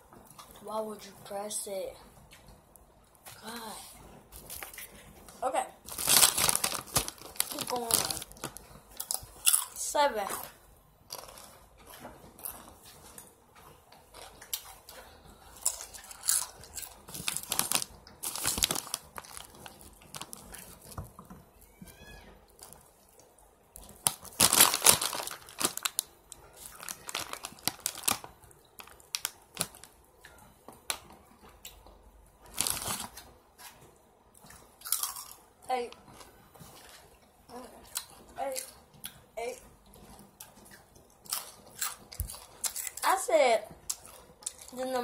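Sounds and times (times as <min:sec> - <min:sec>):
plastic snack bag crinkling: 0:04.4 - 0:10.5, 0:11.1 - 0:11.6, 0:15.5 - 0:21.8, 0:23.8 - 0:30.0, 0:32.4 - 0:33.3.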